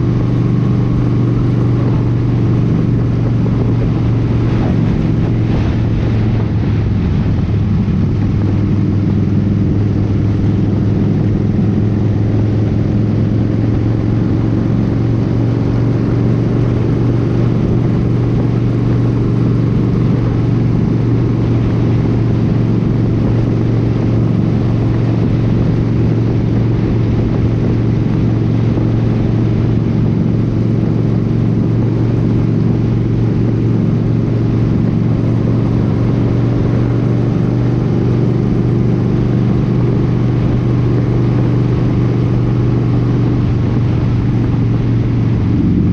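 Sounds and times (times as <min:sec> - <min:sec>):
motorcycle engine cruising: 0:00.0 - 0:45.9
wind and road noise: 0:00.0 - 0:45.9.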